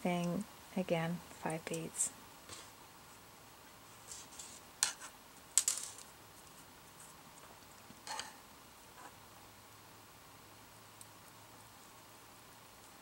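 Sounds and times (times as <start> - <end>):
knitting needles and beads clinking: 1.4 - 2.1.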